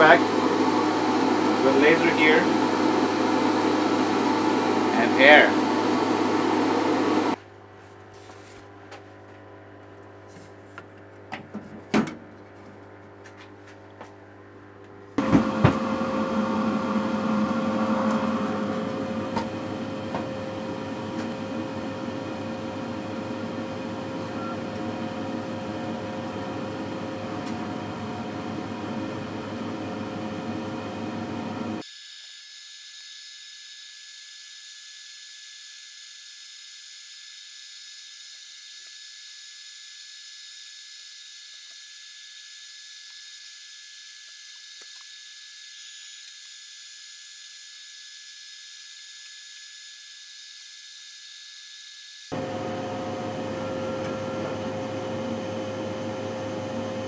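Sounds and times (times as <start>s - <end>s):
exhaust blower whooshing: 0.0s - 7.4s
thin high whine: 0.0s - 7.4s.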